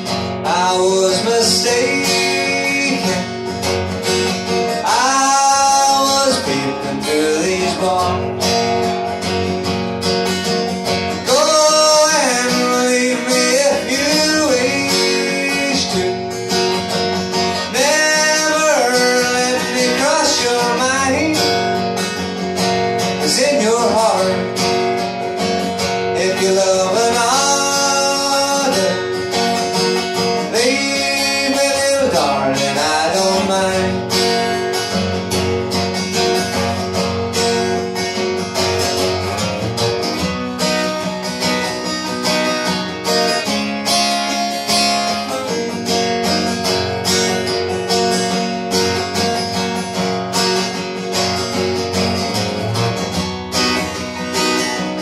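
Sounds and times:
wordless vocal melody: 0.0 - 9.1, 11.0 - 24.8, 25.4 - 34.6
acoustic guitar strumming: 0.0 - 55.0.

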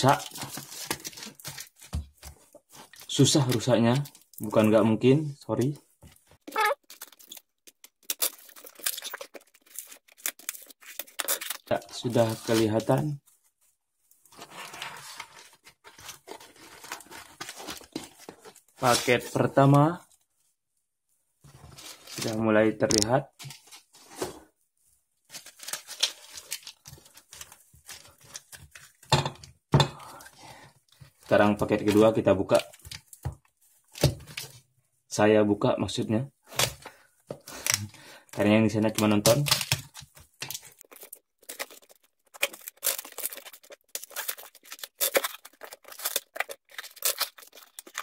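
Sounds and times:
paper wrapping crackling and tearing: 0.0 - 4.7, 6.5 - 13.2, 14.3 - 19.4, 25.3 - 29.1, 36.5 - 48.0
cardboard tearing: 8.0 - 13.0, 38.9 - 48.0.

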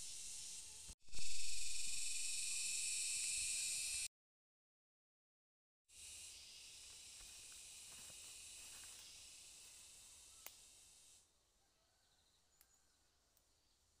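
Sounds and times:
insects buzzing: 0.0 - 4.1, 5.9 - 11.3.

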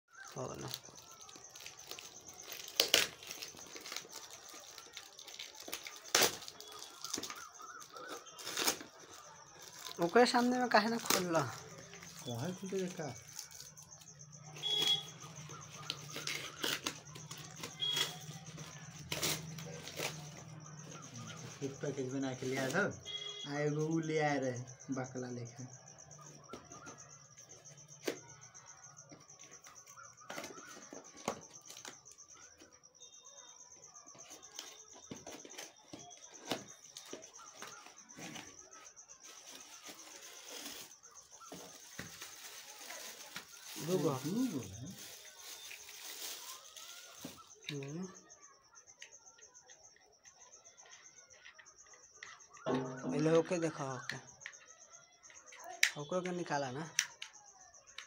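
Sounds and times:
plastic packaging crinkling: 0.1 - 23.3, 34.2 - 47.9.

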